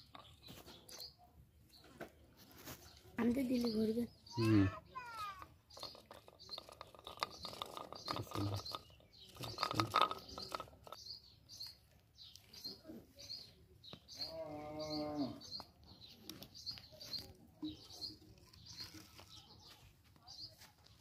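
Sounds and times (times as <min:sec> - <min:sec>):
small birds chirping: 0:00.0 - 0:21.0
clatter: 0:05.7 - 0:11.0
cow mooing: 0:14.3 - 0:15.4.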